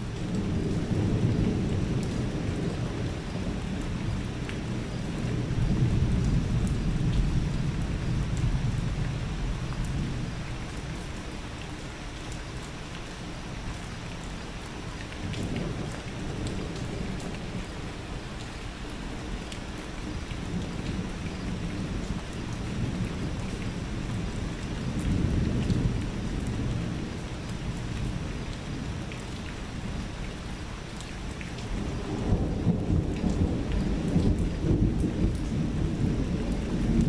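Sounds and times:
thunder rumbling: 0.0 - 11.1, 20.1 - 29.1, 31.6 - 37.0
steady rain: 0.0 - 37.0.

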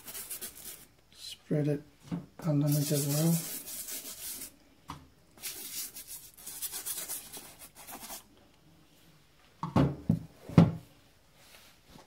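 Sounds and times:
scrubbing rubber sole: 2.7 - 4.5.

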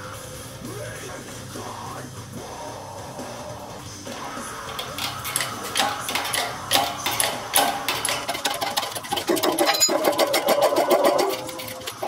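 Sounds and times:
hydraulic press metallic clicking: 4.1 - 12.0.

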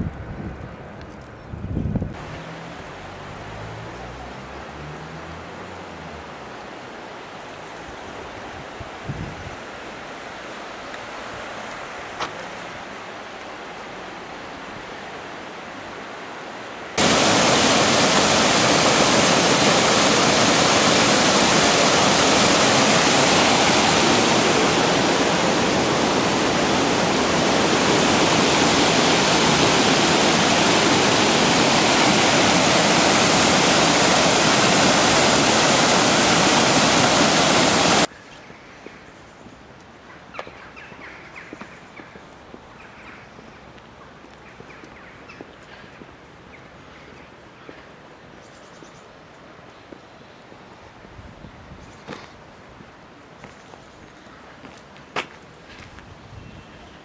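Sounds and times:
water rushing over a weir: 9.6 - 38.1.

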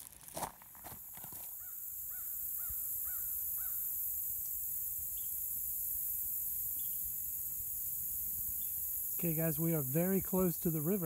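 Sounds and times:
high-pitched insect chorus: 0.4 - 11.0
crow cawing: 1.6 - 3.8.

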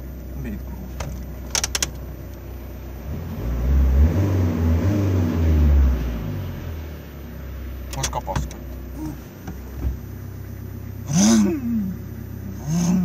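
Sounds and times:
car engine revving: 0.0 - 13.0
sharp clicks: 1.5 - 2.0.

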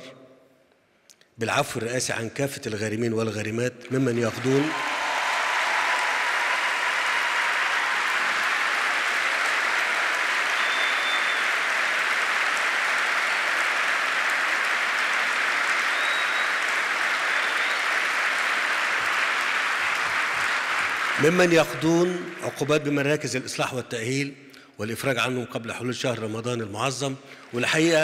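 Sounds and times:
audience applauding: 3.9 - 23.1, 27.4 - 28.0.

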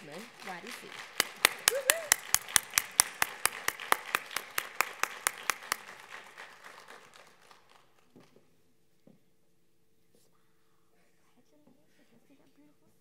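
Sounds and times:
audience applause: 0.0 - 8.3
close loud hand clapping: 0.0 - 8.4.

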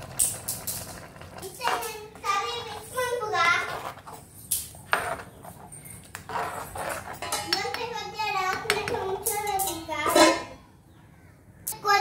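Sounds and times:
ladle scraping in clay pot: 2.6 - 7.8
metal lid clattering onto pot: 7.2 - 7.8, 9.3 - 10.6
child singing or chattering: 7.5 - 10.2, 11.7 - 12.0.

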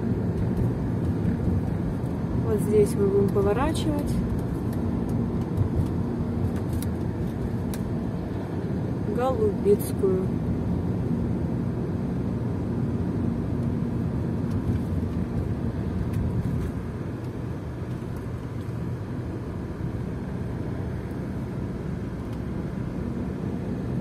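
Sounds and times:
car engine and tyre rumble: 0.0 - 24.0.

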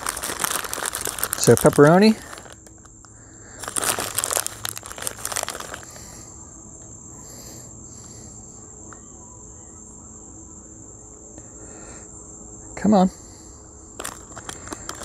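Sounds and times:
plastic packaging crinkling: 0.0 - 6.1, 14.0 - 15.0
crickets chirping: 0.0 - 15.0.

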